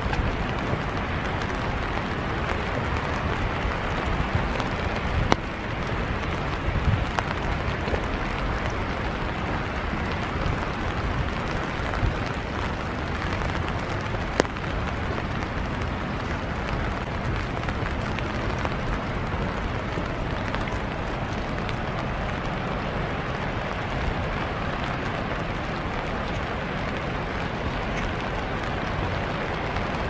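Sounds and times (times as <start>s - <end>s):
steady rain hiss: 0.0s - 30.0s.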